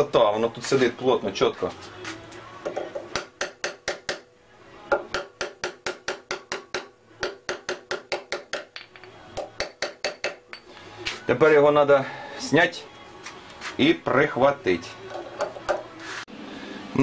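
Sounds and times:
hammer tapping steel plate: 0:02.7 - 0:04.3, 0:04.9 - 0:10.8.

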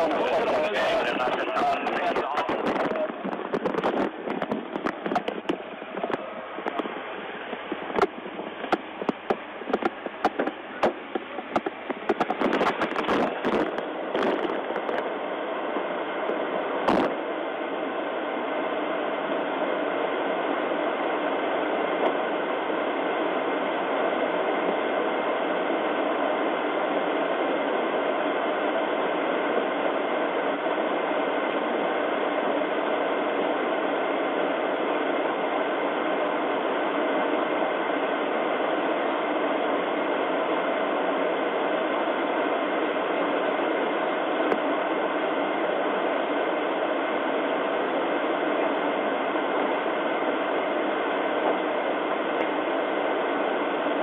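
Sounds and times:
static hiss: 0:00.0 - 0:54.0.

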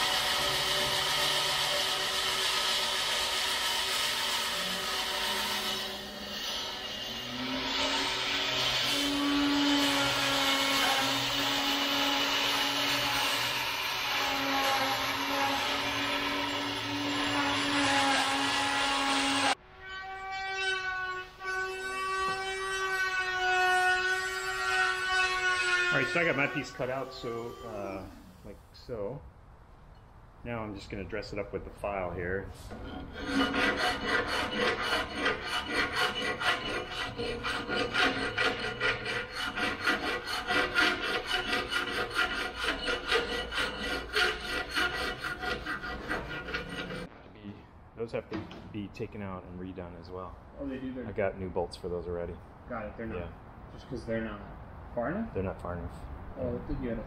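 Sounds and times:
file rasping on metal: 0:00.0 - 0:19.6, 0:32.7 - 0:47.1
power tool cutting plywood: 0:00.0 - 0:28.0
bandsaw humming: 0:00.0 - 0:28.3, 0:32.8 - 0:47.1.

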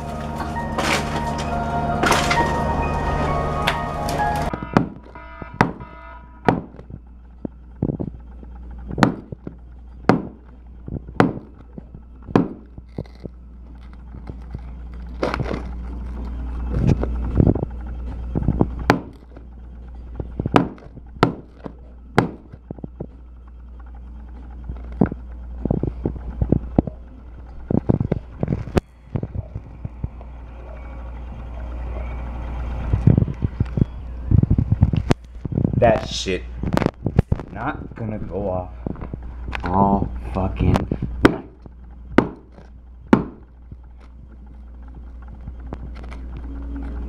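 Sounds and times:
firecrackers banging: 0:00.0 - 0:06.9
low rumble: 0:00.0 - 0:47.0.

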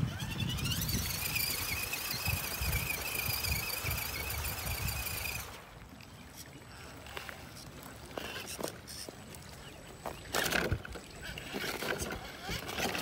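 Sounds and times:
electric motor whining: 0:00.0 - 0:05.7.

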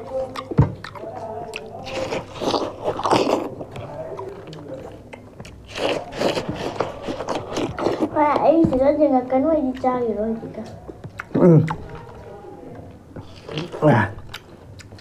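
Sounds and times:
wet biting and chewing: 0:00.0 - 0:08.4, 0:10.6 - 0:12.2, 0:13.2 - 0:15.0.

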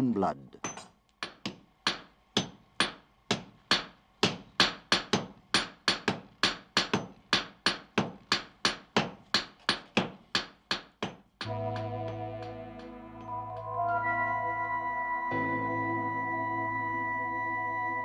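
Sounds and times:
hammer striking steel on anvil: 0:00.6 - 0:13.9.

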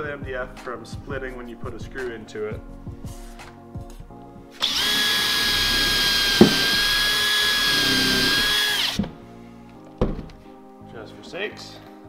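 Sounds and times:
cordless drill whining: 0:04.6 - 0:09.1.

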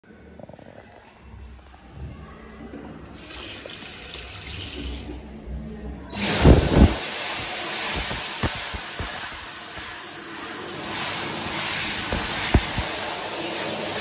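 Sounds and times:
air buffeting microphone: 0:06.2 - 0:09.9, 0:12.0 - 0:13.0
hand dryer blowing air: 0:06.2 - 0:14.0.

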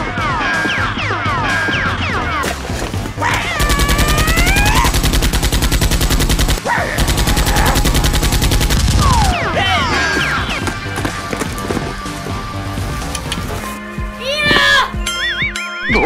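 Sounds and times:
machine-gun fire sound effect: 0:03.6 - 0:09.4.

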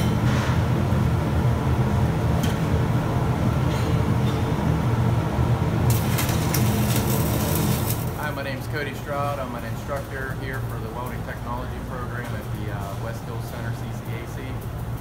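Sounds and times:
low shop rumble: 0:00.0 - 0:15.0
welding arc crackling: 0:00.7 - 0:15.0.

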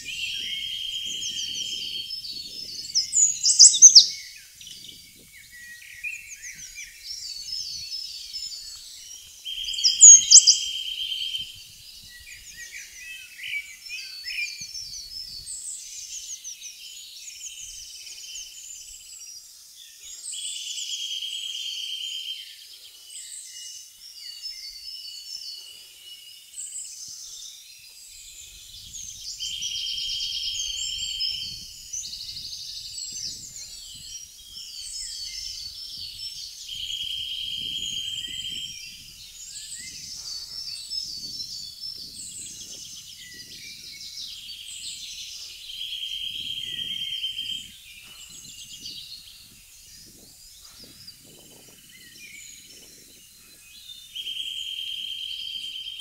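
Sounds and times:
loud sharp bird chirp: 0:00.0 - 0:04.9, 0:09.5 - 0:11.6, 0:34.8 - 0:56.0
songbirds singing: 0:00.0 - 0:56.0
buzzy bird trill: 0:03.0 - 0:04.1, 0:09.6 - 0:10.8.

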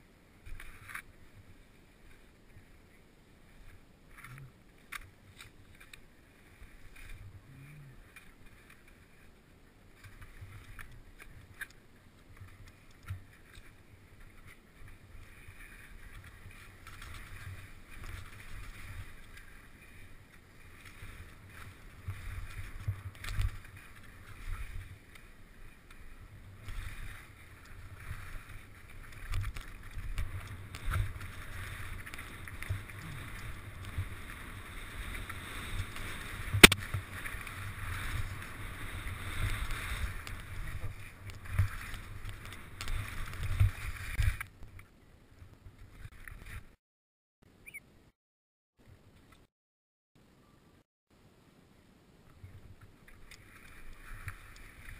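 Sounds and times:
skis swishing on snow: 0:12.3 - 0:44.4, 0:53.4 - 0:54.9
sharp knock: 0:36.6 - 0:36.8.

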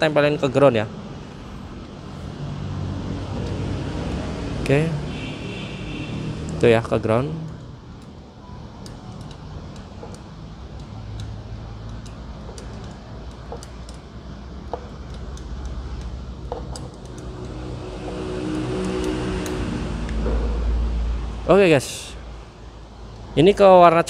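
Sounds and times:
vehicle engine: 0:00.0 - 0:23.8
screwdriver clicks and taps: 0:08.8 - 0:14.0, 0:14.6 - 0:20.2.

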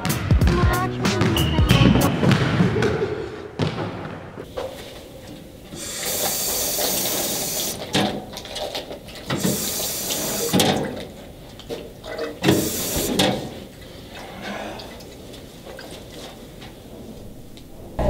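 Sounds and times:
drinking fountain water hissing: 0:05.7 - 0:14.0.

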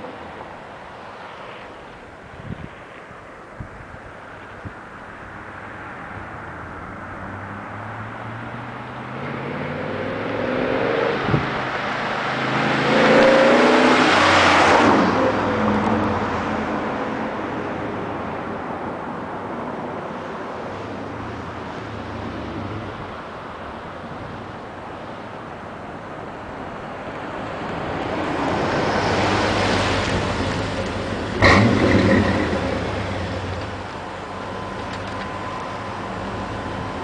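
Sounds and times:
pickup truck exhaust: 0:30.2 - 0:37.0
pickup truck idling: 0:30.7 - 0:37.0
exhaust bang: 0:31.4 - 0:33.7.

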